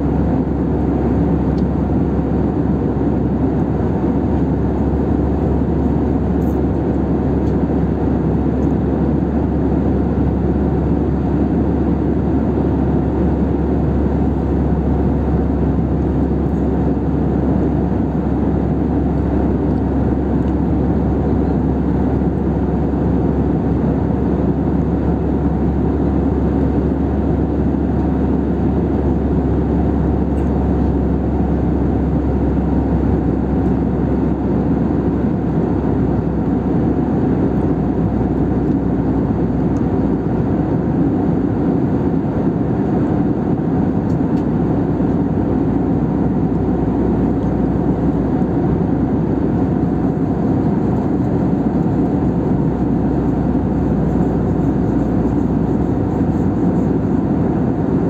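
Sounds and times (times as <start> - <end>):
airplane cabin drone: 0.0 - 58.0.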